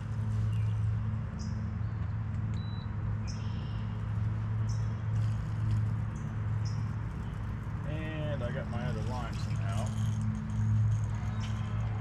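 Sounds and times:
bird chirping: 1.4s - 4.0s.

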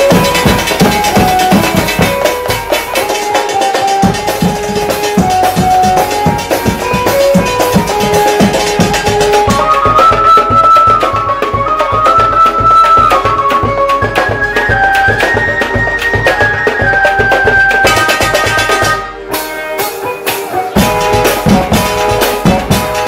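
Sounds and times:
heavy low drum strikes: 0.0s - 9.8s, 20.7s - 23.0s
drum ensemble playing: 0.0s - 23.0s
melody line: 0.0s - 23.0s.

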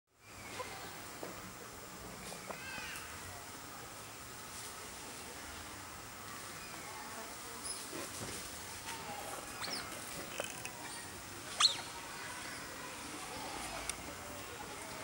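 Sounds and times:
monkeys squeaking: 9.6s - 11.9s.

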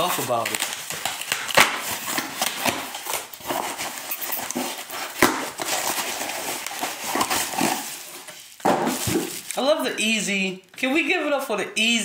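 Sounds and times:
sharp cracks of cardboard: 0.0s - 7.8s
cardboard ripping and rustling: 0.0s - 9.8s.

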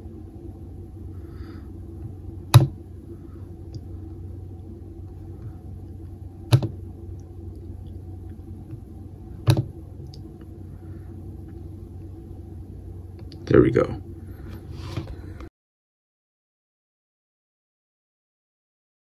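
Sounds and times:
steady low hum: 0.0s - 15.5s
laptop clicks: 2.5s - 2.8s, 6.5s - 6.8s.

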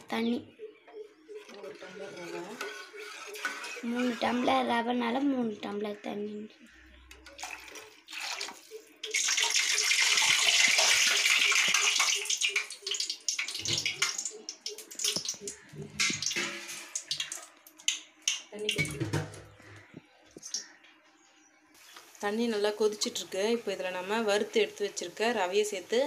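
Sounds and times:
water pouring and splashing: 7.2s - 19.4s.

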